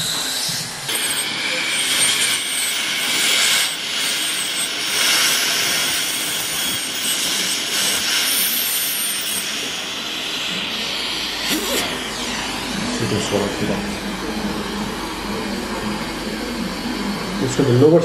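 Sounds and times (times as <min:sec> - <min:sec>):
ultrasonic scaler high whine: 0:00.0 - 0:18.0
dental suction hiss: 0:00.9 - 0:09.8.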